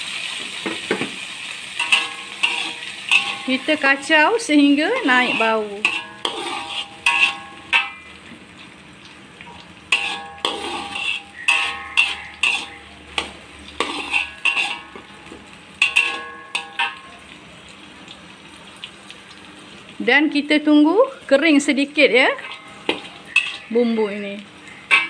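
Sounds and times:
paste sizzling in oil: 0.0 - 25.0
metal spatula scraping wok: 1.7 - 8.2, 9.9 - 17.1, 22.0 - 25.0.

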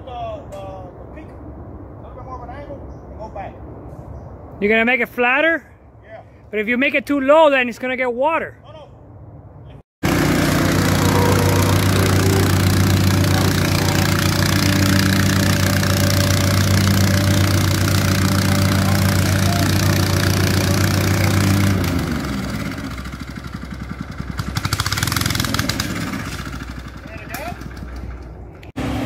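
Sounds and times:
plate compactor engine: 10.0 - 29.0.

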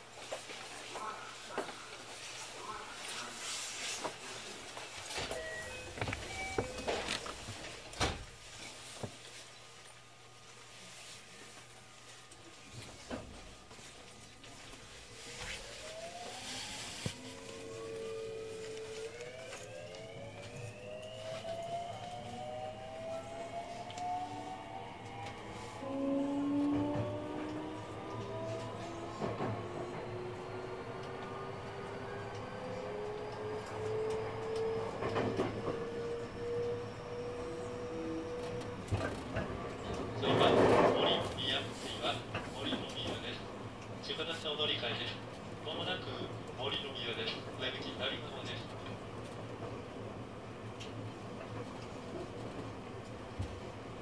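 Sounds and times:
electric train motors whining: 15.3 - 40.0.

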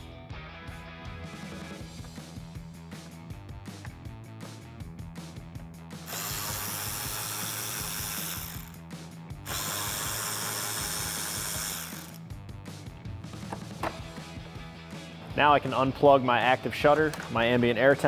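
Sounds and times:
ratchet clicking: 6.0 - 8.9, 9.5 - 12.2
ratchet whirring: 6.0 - 12.3.

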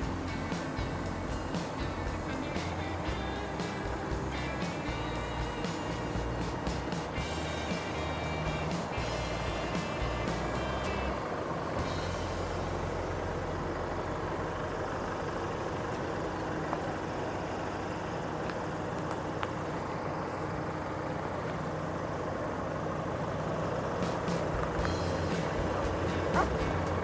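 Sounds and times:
truck engine running at low revs: 0.0 - 27.0
faint tyre clicks: 18.3 - 19.8.

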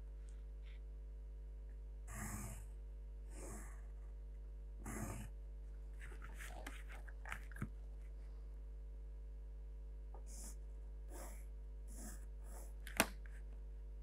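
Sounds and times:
pencil scratching on paper: 6.0 - 7.2, 10.3 - 12.8.

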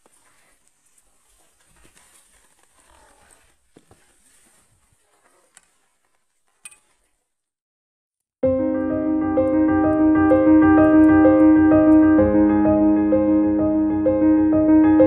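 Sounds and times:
keyboard music with held chords: 8.4 - 15.0.

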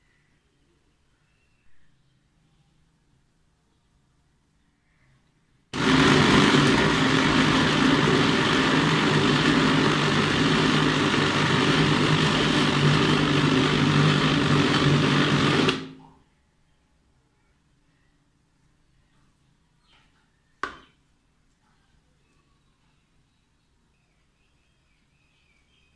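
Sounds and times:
food processor mincing: 5.8 - 16.0.

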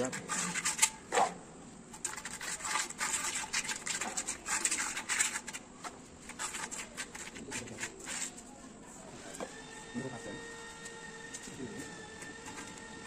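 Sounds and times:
trowel scraping mortar on stone: 0.0 - 8.5.

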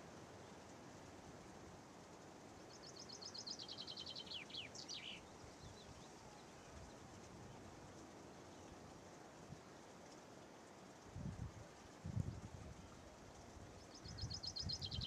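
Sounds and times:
faint background hiss: 0.0 - 15.0
songbird singing: 2.3 - 10.2, 12.7 - 15.0.

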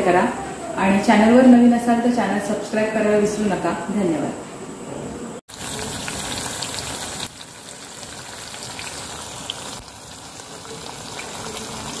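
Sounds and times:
hot oil sizzling and crackling: 5.5 - 12.0.

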